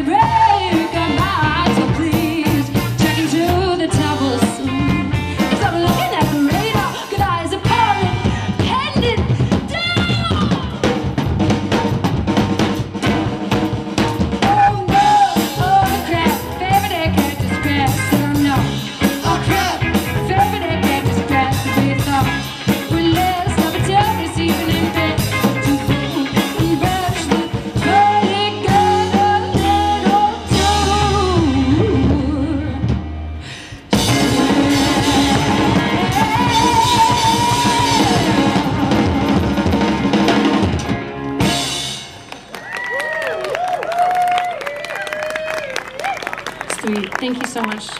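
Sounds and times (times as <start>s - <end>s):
drum kit: 0.0s - 43.0s
electric guitar: 0.0s - 47.2s
person singing: 14.4s - 33.0s, 33.6s - 39.9s.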